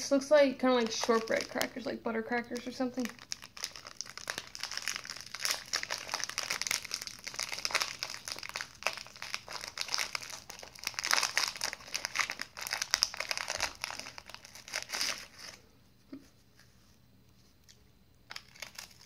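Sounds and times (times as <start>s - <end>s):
snack wrapper crinkling: 0.7s - 1.8s, 2.5s - 15.6s, 18.3s - 19.0s.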